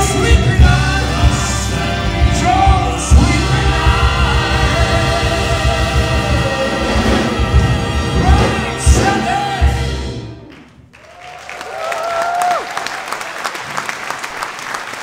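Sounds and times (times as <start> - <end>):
big band with vocalists: 0.0 - 10.5
audience applauding: 10.5 - 15.0
long shouted cheer: 11.0 - 13.8.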